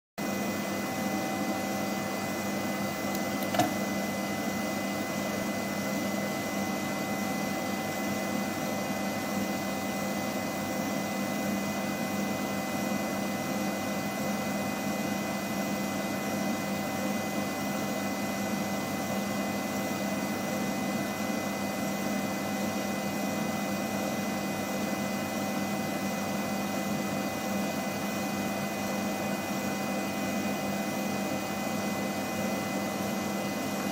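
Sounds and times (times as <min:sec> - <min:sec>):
sharp click: 0:03.1 - 0:03.8.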